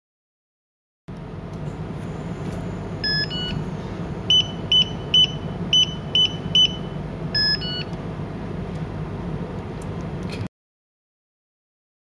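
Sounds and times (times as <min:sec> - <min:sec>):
short high keypad beeps: 0:03.0 - 0:03.6, 0:04.3 - 0:07.9.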